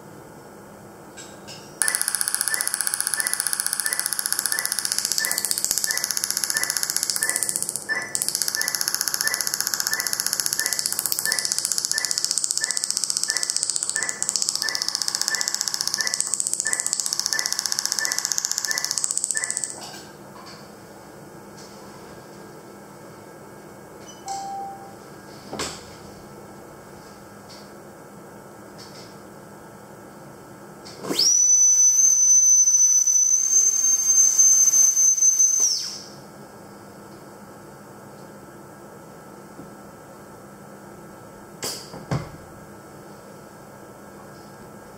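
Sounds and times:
high-pitched dental scaler whistle: 0:01.8 - 0:19.8, 0:31.1 - 0:36.2
laser pulses ticking: 0:01.8 - 0:19.9
short high beep: 0:24.1 - 0:25.0.

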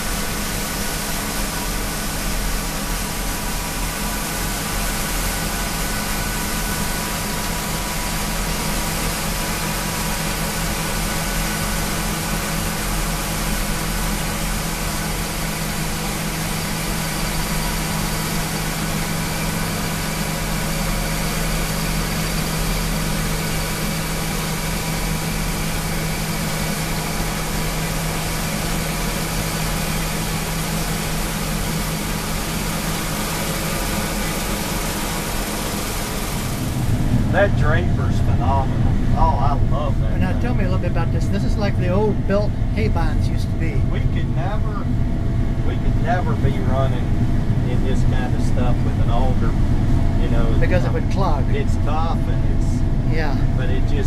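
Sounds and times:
combine harvester engine drone: 0:00.0 - 0:54.0.

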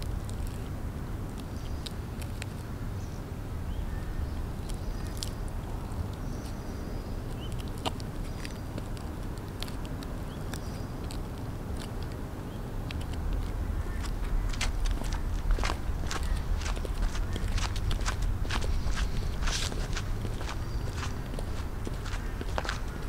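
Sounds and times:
low outdoor rumble: 0:00.0 - 0:23.0
high heels clicking on concrete: 0:14.0 - 0:23.0.

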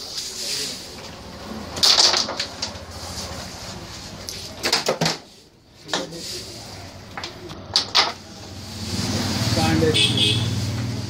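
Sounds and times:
carrom pieces clacking: 0:00.9 - 0:06.2, 0:06.9 - 0:08.3.

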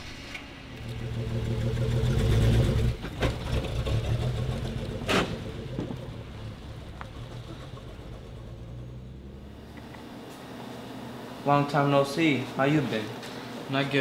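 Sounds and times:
car engine driving off: 0:00.0 - 0:10.2.

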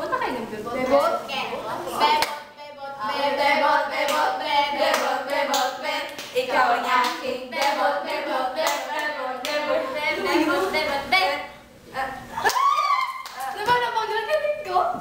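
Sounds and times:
girls singing together: 0:01.9 - 0:11.6.

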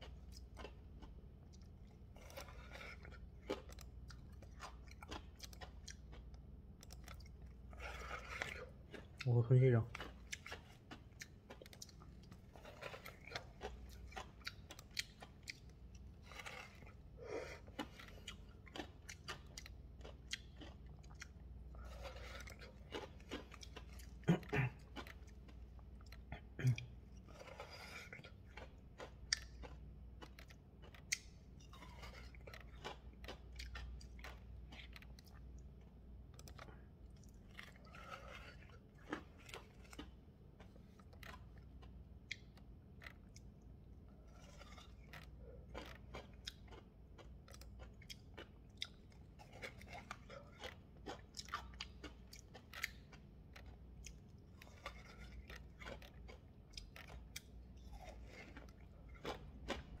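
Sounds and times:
chewing and crunching ice: 0:00.0 - 1:00.0.

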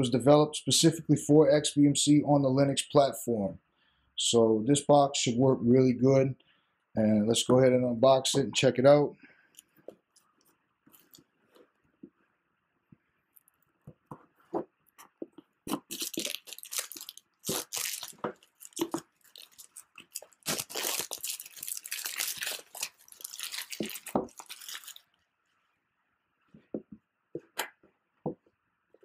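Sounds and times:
plastic wrap tearing and crinkling: 0:15.7 - 0:25.1.

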